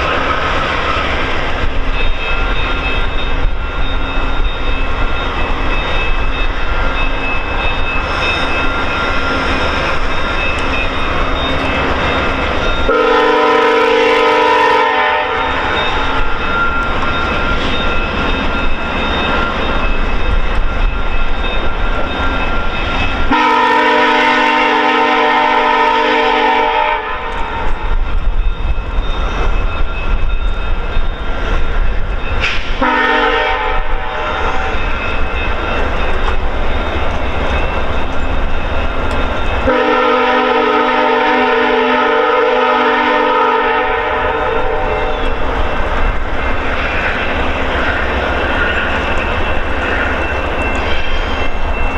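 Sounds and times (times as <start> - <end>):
train coaches rumbling over rails: 0.0 - 51.9
train horn blasts: 12.9 - 15.8, 23.3 - 27.8, 32.8 - 34.6, 39.6 - 45.2.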